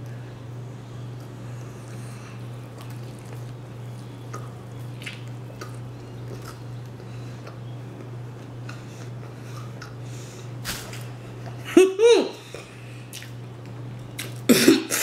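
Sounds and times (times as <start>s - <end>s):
steady low hum: 0.0s - 15.0s
chewing mouth clicks and smacks: 2.6s - 10.0s, 12.5s - 14.5s.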